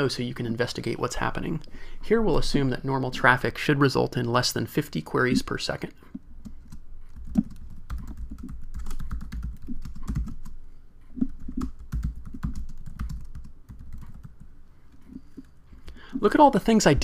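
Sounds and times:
computer keyboard typing: 6.4 - 10.6, 11.2 - 15.5.

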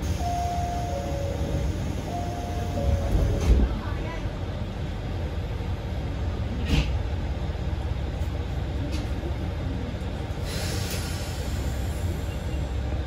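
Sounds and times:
diesel railcar engine idling: 0.0 - 13.0.

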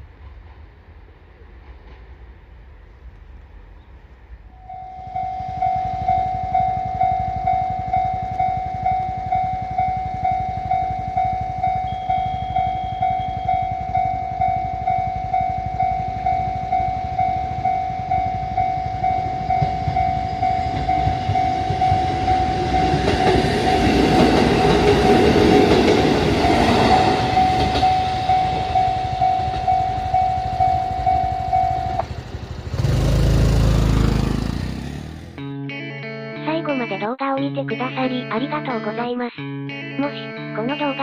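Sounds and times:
electric train passing: 0.0 - 36.1
level crossing bell ringing: 4.6 - 32.4.

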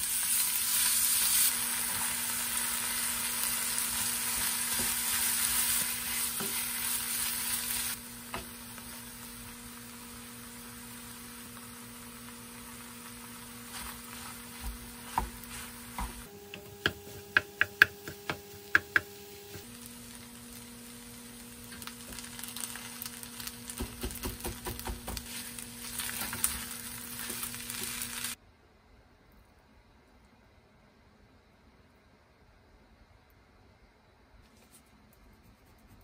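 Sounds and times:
fried rice sizzling in a frying pan: 0.0 - 16.3, 18.6 - 28.4
wooden spatula stirring: 13.6 - 19.1.

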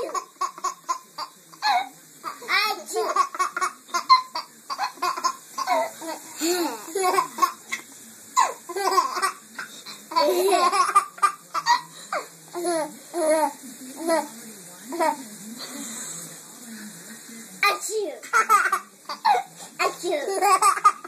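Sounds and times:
baby laughing: 0.0 - 7.6, 8.4 - 9.4, 10.1 - 11.8, 18.3 - 21.0.

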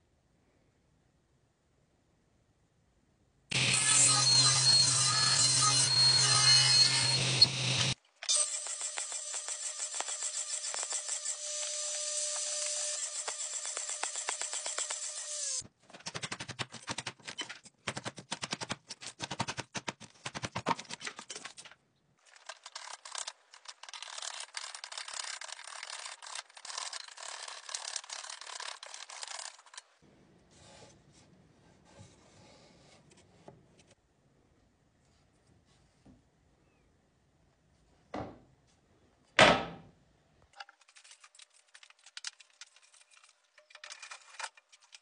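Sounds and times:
power saw spinning down: 3.5 - 9.2.

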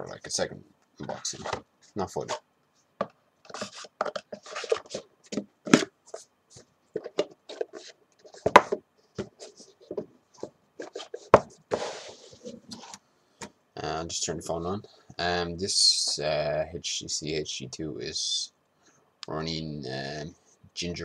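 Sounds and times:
hands tapping and knocking on box: 8.4 - 10.1.

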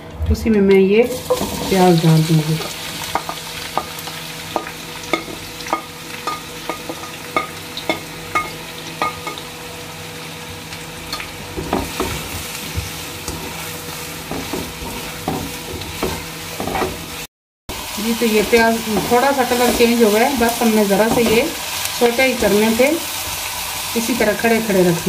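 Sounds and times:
onions sizzling in oil: 1.1 - 25.0
spatula stirring and scraping: 11.6 - 17.0.

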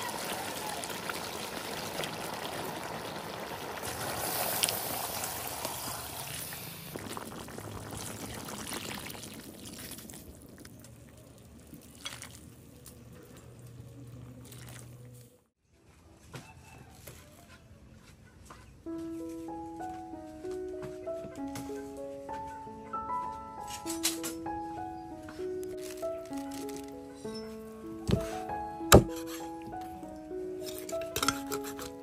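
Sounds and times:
curry bubbling in a pot: 0.0 - 13.5.

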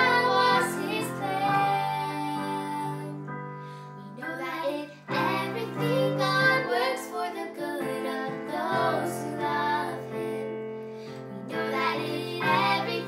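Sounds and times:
girls singing in unison: 0.0 - 3.3, 4.0 - 13.0.

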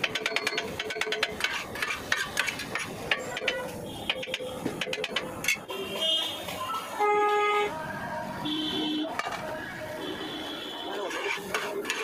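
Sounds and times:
cleavers chopping on steel griddle: 0.0 - 5.6, 11.1 - 12.0.

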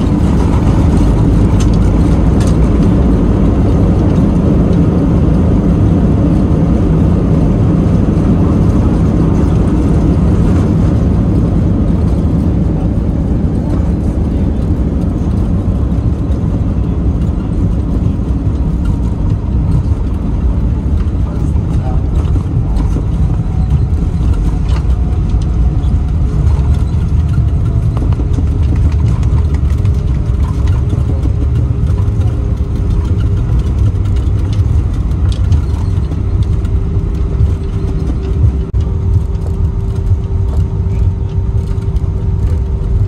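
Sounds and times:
airliner cabin engine rumble: 0.0 - 43.0.

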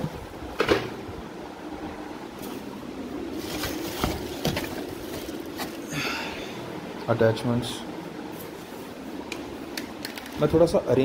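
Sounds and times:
fan humming: 0.0 - 11.0
plastic and cardboard rustling: 2.4 - 5.9.

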